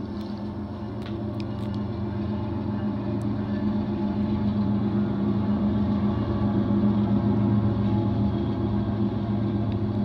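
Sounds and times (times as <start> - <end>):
freight train locomotives running: 0.0 - 10.0.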